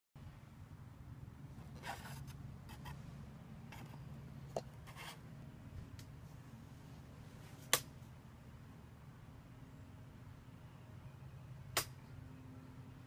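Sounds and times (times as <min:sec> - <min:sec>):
soft scrapes and rubs: 0:01.6 - 0:03.1.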